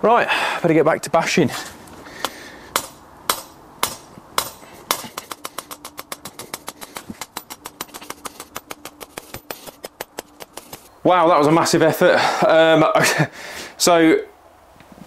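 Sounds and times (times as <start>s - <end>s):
hammer striking metal rod: 2.7s - 10.9s.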